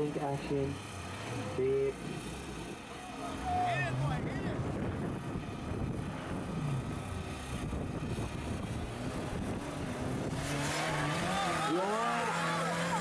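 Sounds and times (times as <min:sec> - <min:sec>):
buggy engine rumbling: 0:00.0 - 0:13.0.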